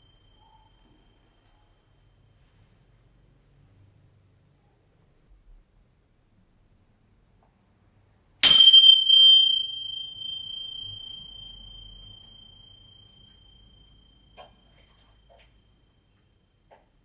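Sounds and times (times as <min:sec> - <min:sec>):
small metal object ringing: 0:00.0 - 0:02.2, 0:08.4 - 0:16.7.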